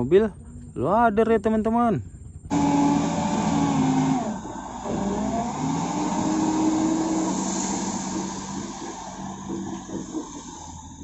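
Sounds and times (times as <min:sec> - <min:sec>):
diesel engine under load: 0:02.3 - 0:11.0.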